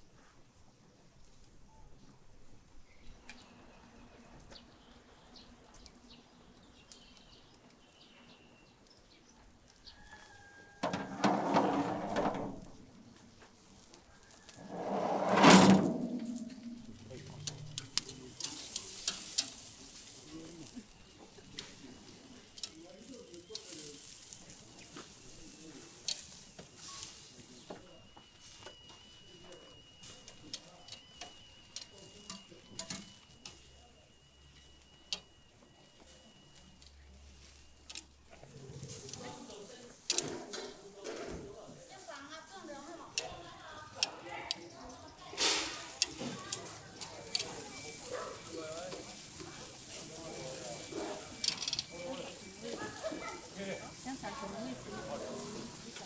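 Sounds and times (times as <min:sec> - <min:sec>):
sausages sizzling on a grill: 0:00.0 - 0:15.3, 0:16.5 - 0:56.0
bird chirps: 0:02.8 - 0:10.0
metal grill grate scraping on drum: 0:10.8 - 0:12.8, 0:14.3 - 0:20.8
metal tongs clicking on grate: 0:17.4 - 0:19.7, 0:46.0 - 0:47.6.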